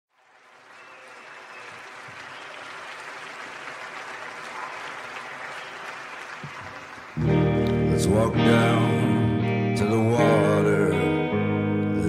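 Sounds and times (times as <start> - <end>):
audience applauding: 0.1 - 7.8.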